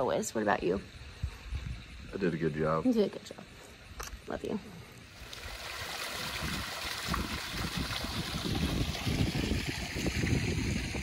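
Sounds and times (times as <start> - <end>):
wind rumble on microphone: 1.0 - 2.2, 5.4 - 11.0
water jet splashing into pool: 5.1 - 11.0.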